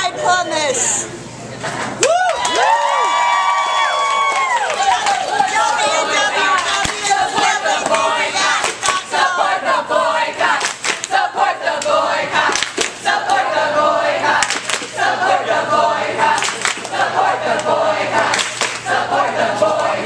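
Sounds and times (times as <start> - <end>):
group of people singing: 5.0 - 20.0
hand claps: 10.6 - 11.2, 14.4 - 15.0, 16.4 - 17.0, 18.3 - 18.9.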